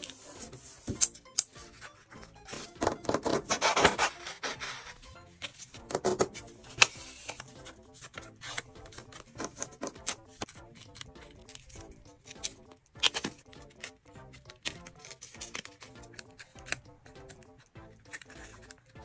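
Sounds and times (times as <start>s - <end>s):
scissors snipping card: 0.0s - 19.0s
soft background music: 0.0s - 19.0s
paper rustling and tapping: 5.4s - 18.9s.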